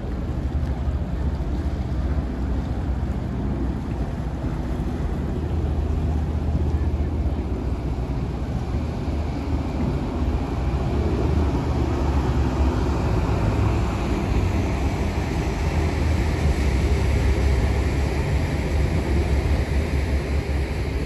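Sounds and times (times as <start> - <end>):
boat engines rumbling: 0.0 - 21.0.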